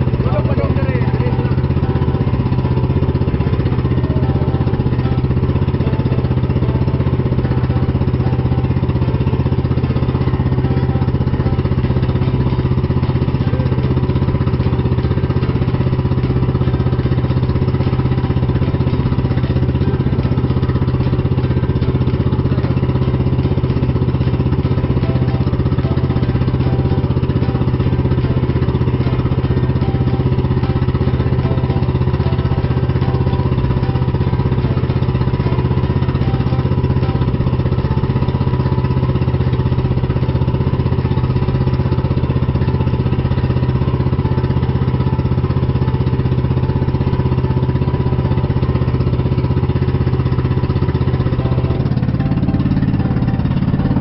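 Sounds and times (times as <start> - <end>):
boat engine running: 0.0 - 54.0.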